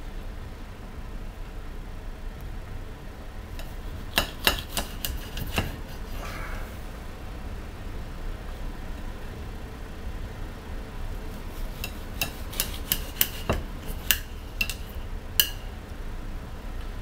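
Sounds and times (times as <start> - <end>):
low steady hum: 0.0 - 17.0
knife clinking on a glass plate: 11.7 - 15.7.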